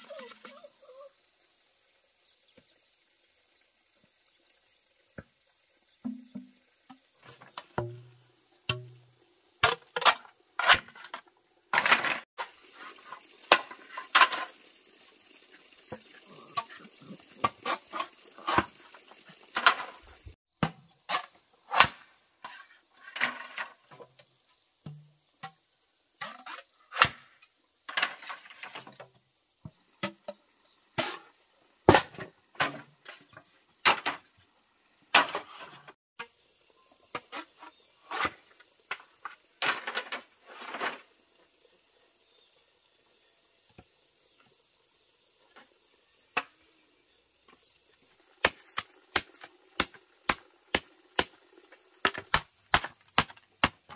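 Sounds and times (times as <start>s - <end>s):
insects droning: 0.0s - 53.9s
machete chopping bamboo: 8.7s - 9.0s, 48.4s - 51.4s, 52.0s - 53.9s.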